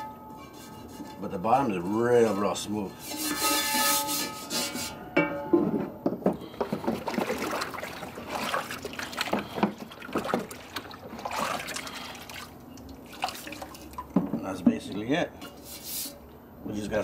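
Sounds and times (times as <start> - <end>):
water dripping and splashing into tub: 6.6 - 14.3.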